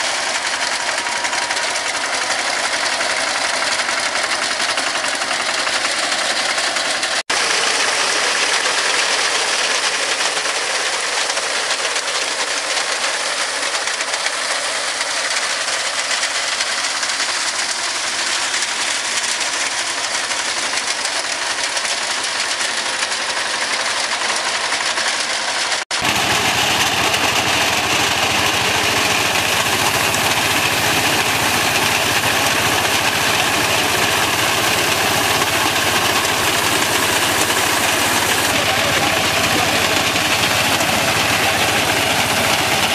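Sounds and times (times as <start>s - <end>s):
tractor engine running: 0.0s - 42.9s.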